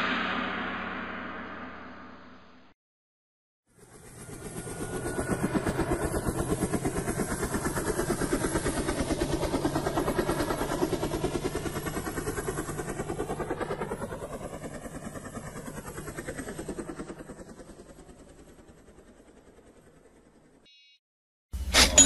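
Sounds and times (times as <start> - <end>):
helicopter rotor chopping: 3.7 - 20.6.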